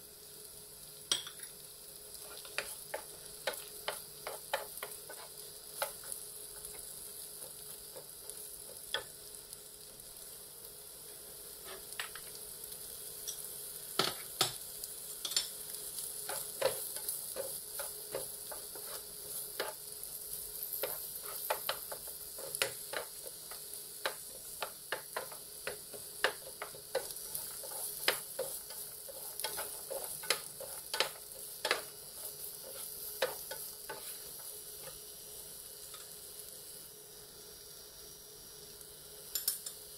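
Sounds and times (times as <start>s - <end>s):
food sizzling in a frying pan: 0.0s - 39.9s
wooden spatula scraping pan: 2.2s - 6.1s, 11.6s - 12.2s, 16.2s - 19.8s, 20.6s - 35.0s.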